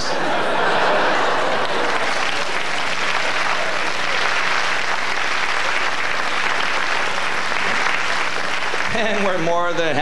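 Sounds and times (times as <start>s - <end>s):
audience applauding: 0.2s - 10.0s.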